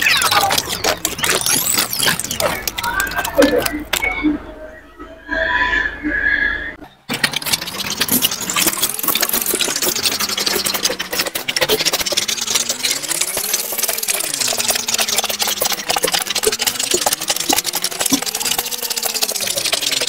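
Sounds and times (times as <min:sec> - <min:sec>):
pens scratching on paper: 0:00.0 - 0:04.1, 0:07.1 - 0:20.0
plastic gear wheels clicking: 0:00.0 - 0:04.1, 0:07.1 - 0:20.0.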